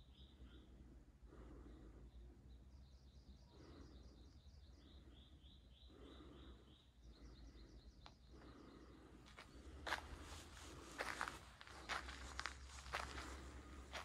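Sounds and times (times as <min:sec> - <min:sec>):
small bird chirping: 0:01.7 - 0:09.6.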